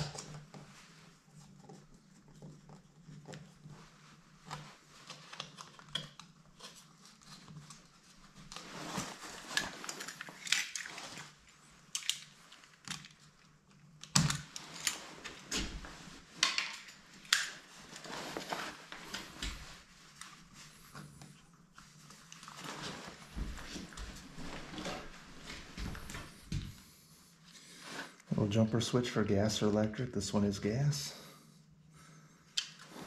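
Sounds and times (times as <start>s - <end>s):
clothing rustle: 0.4s - 28.6s, 32.7s - 33.0s.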